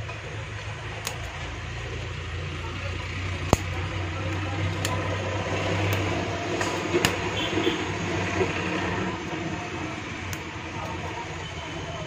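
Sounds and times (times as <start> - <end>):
background hum and rumble: 0.0 - 12.0
hand cutters snipping plastic: 0.8 - 2.2, 3.4 - 9.5.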